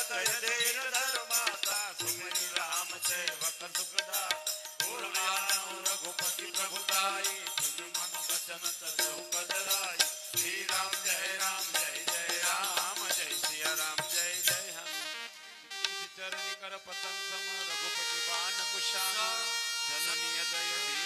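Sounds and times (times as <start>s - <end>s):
small hand cymbals jingling: 0.0s - 14.8s.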